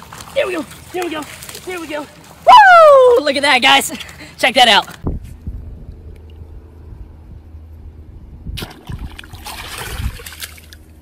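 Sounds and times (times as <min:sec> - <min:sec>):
water splashing and sloshing: 0:00.0 - 0:06.8, 0:08.5 - 0:11.0
low steady rumble: 0:05.0 - 0:11.0.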